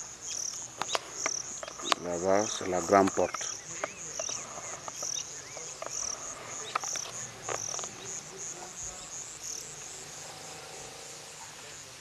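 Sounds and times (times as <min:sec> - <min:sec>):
insects chirping: 0:00.0 - 0:12.0
faint clicks: 0:00.3 - 0:08.1.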